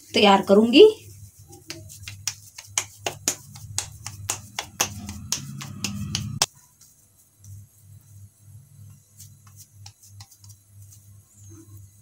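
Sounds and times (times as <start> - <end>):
hands slapping dough: 1.3 - 7.7, 8.8 - 11.1.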